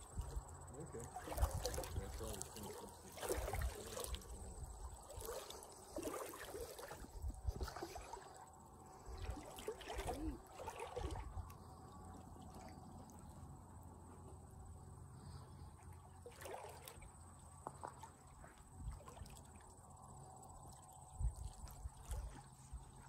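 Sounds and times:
river water sloshing and trickling: 0.0s - 23.0s
paddle splashes: 0.2s - 13.4s, 15.3s - 19.7s, 21.2s - 23.0s.

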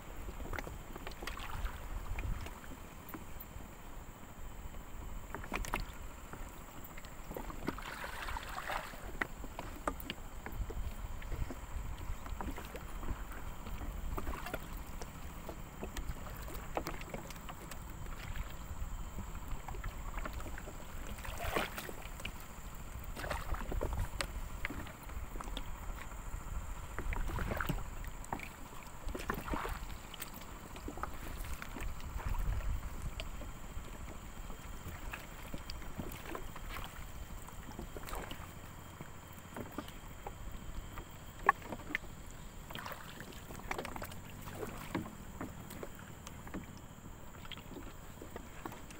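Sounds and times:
water splashing and sloshing: 0.0s - 48.9s
steady low rumble: 10.2s - 36.0s.

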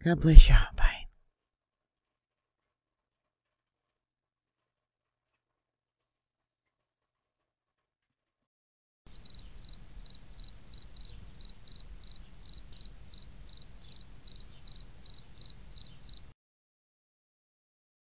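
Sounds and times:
cricket chirping: 9.1s - 16.3s.

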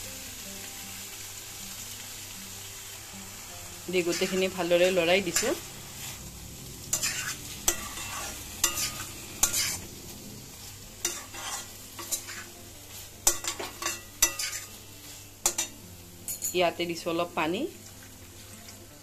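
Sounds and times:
low frying sizzle: 0.0s - 19.0s
spatula scraping a pan: 4.0s - 4.6s, 6.9s - 15.8s.

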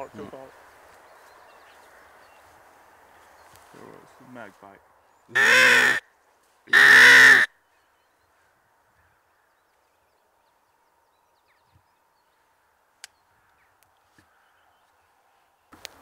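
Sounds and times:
crow call caw: 5.3s - 6.1s, 6.7s - 7.6s.

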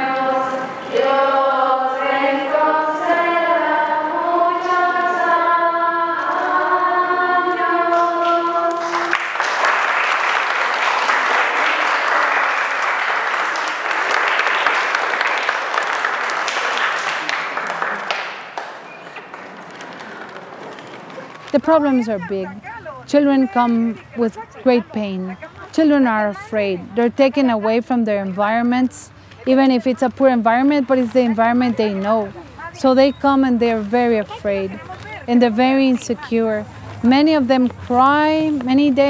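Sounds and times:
group singing: 0.0s - 9.1s
applause: 8.0s - 21.6s.

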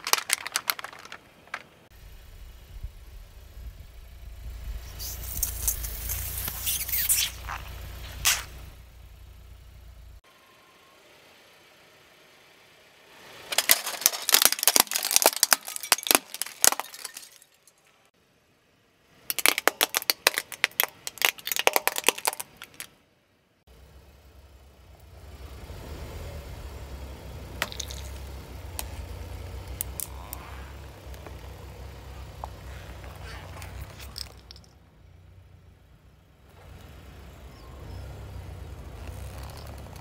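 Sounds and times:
plastic toys crunching under tyre: 0.0s - 1.9s, 5.0s - 8.5s, 13.4s - 17.8s, 19.3s - 22.9s, 27.6s - 34.7s, 38.9s - 40.0s
car engine humming: 0.0s - 23.0s, 23.6s - 40.0s.

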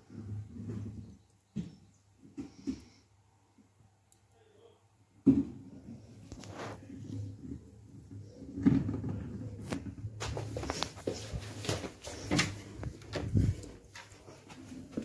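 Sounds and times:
sharp knocks and clunks: 5.2s - 5.7s.

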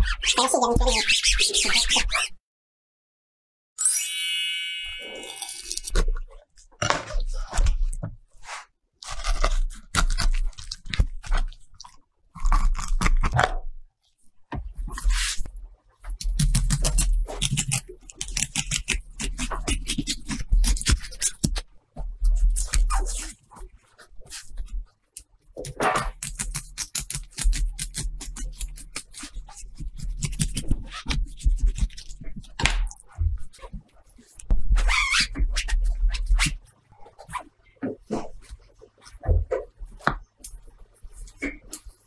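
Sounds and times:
ringing chime: 3.8s - 5.7s
knife scraping through fish: 8.4s - 11.6s, 14.9s - 15.5s.

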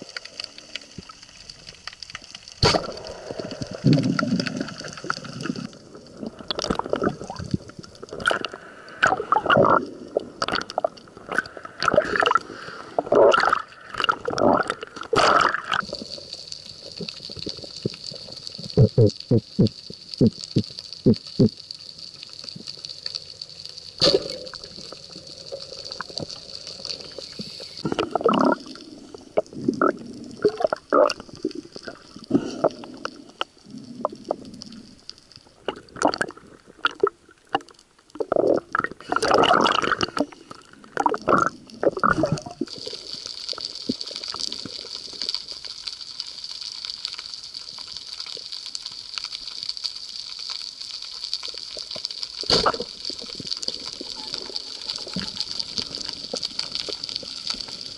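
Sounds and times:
underwater hiss: 2.5s - 7.6s, 8.3s - 10.4s, 11.3s - 13.9s, 22.8s - 35.2s.

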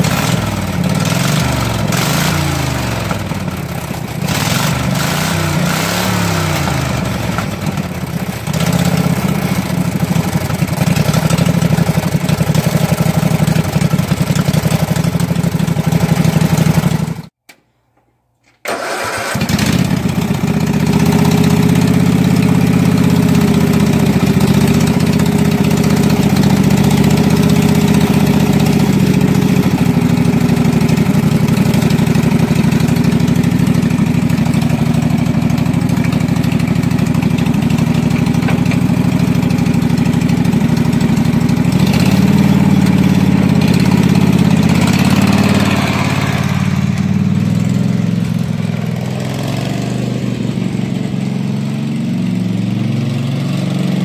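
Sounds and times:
riding mower engine running: 0.0s - 17.3s, 18.7s - 54.0s.

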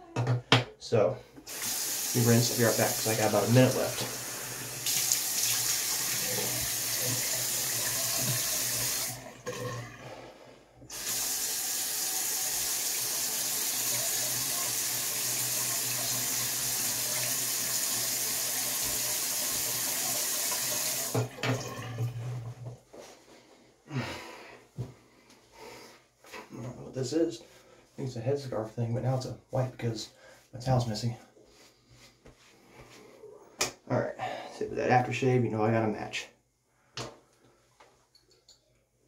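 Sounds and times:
sink tap running: 1.5s - 9.8s, 10.9s - 21.8s.

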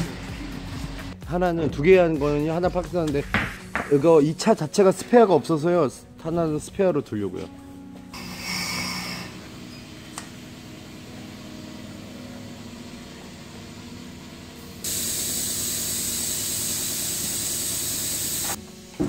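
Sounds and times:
compressed air hissing: 8.2s - 9.6s, 14.6s - 19.0s
low machine hum: 9.1s - 14.9s.

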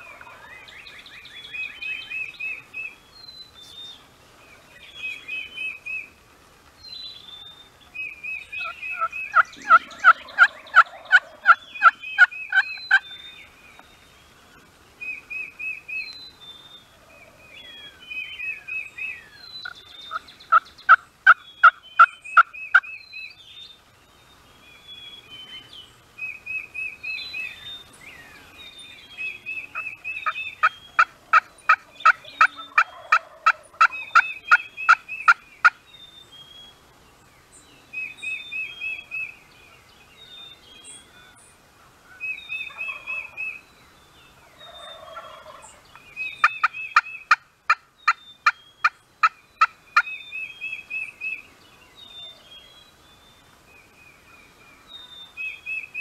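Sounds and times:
songbirds trilling and chirping: 0.0s - 56.0s
turkey yelps: 8.6s - 13.0s, 29.7s - 35.4s, 42.7s - 43.5s, 44.5s - 45.8s.

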